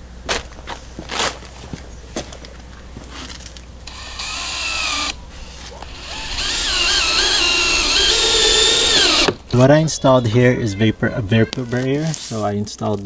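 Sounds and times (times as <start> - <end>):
cordless drill whining: 3.9 - 9.6.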